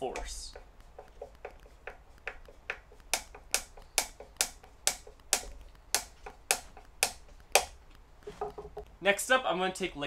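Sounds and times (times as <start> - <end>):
screwdriver clicking with each turn: 0.1 - 7.8.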